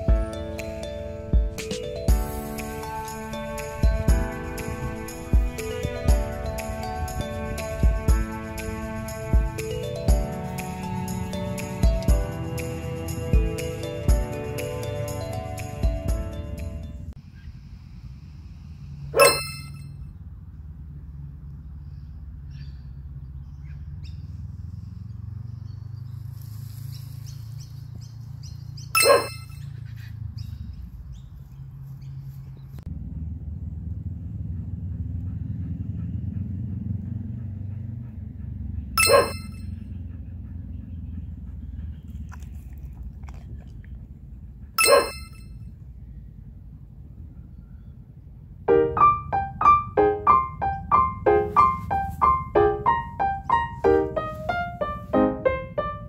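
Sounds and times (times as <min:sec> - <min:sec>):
metallic ding: 0:19.2 - 0:19.9, 0:29.0 - 0:29.6, 0:39.0 - 0:39.7, 0:44.8 - 0:45.6.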